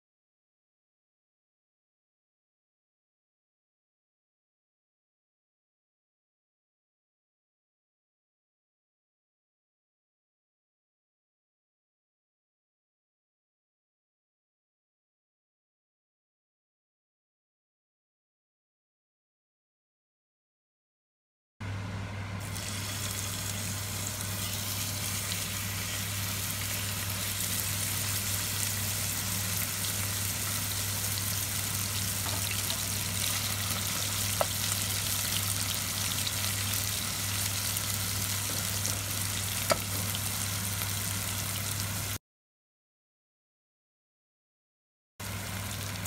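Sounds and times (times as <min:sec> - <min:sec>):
low steady hum: 0:21.6 - 0:42.1
meat sizzling in oil: 0:22.4 - 0:42.2, 0:45.2 - 0:46.0.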